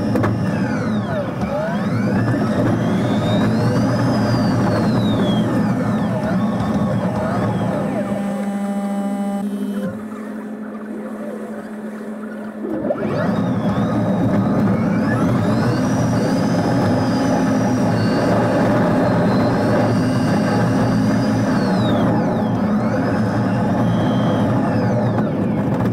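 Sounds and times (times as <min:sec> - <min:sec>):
bus cabin low hum: 0:00.0 - 0:25.9
electric motor whine: 0:00.0 - 0:25.9.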